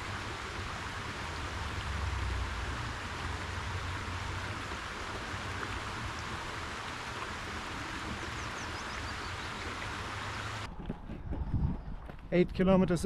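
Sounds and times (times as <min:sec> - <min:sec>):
river rushing over rocks: 0:00.0 - 0:10.7.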